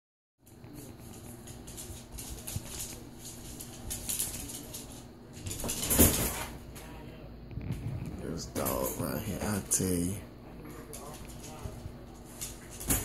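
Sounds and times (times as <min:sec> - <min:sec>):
dog paws clicking on wood floor: 0:00.4 - 0:06.6, 0:10.7 - 0:13.0
dog landing on wire crate: 0:05.4 - 0:06.6.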